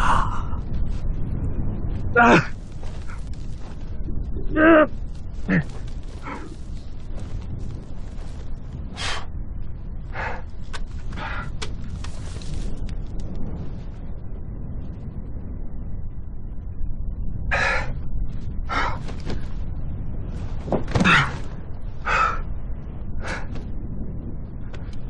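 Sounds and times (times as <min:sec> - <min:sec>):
strong wind rumbling: 0:00.0 - 0:25.0.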